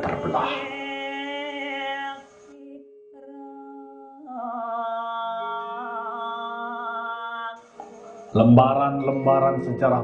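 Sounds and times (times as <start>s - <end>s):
person humming: 0.0s - 1.6s
slow background music: 0.0s - 10.0s.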